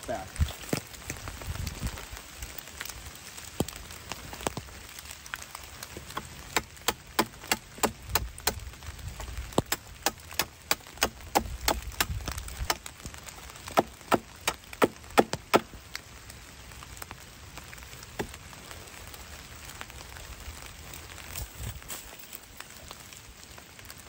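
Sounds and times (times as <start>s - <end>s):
light rain: 0.0s - 24.0s
knife chopping wood: 6.0s - 8.6s, 9.6s - 12.9s, 13.7s - 15.7s.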